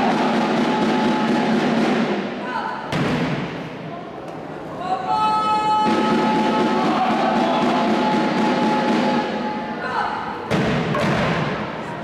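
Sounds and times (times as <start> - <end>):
loud reverberant thump: 0.0 - 4.4, 10.4 - 12.0
echoing murmur of voices: 0.0 - 12.0.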